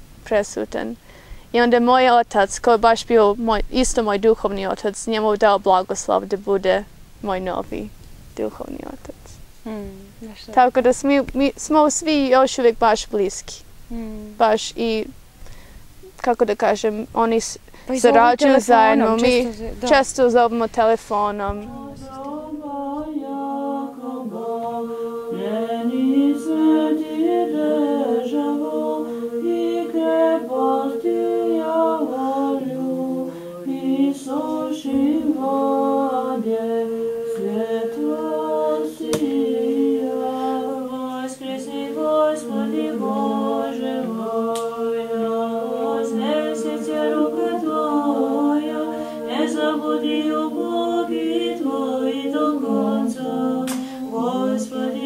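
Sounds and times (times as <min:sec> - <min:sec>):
choir chanting unaccompanied: 0:17.9 - 0:55.0.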